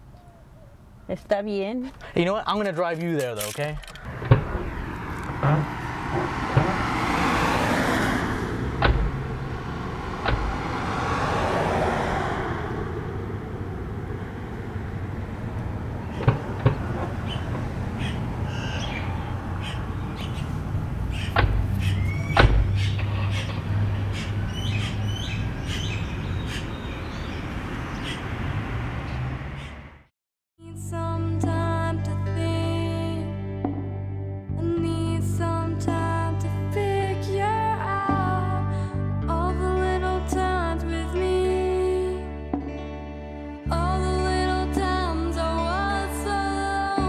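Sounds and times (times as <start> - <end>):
car doors shutting: 3.1 - 13.8, 15.0 - 25.0
car engine running: 3.8 - 25.6
birds chirping: 14.2 - 30.0.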